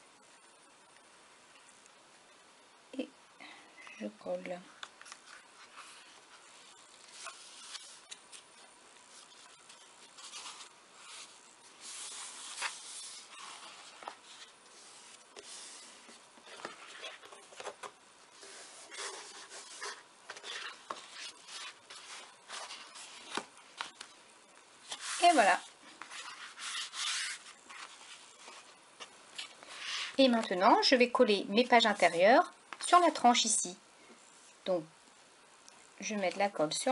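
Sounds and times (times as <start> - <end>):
paper and card rustling: 4.8 - 24.2, 24.8 - 30.6.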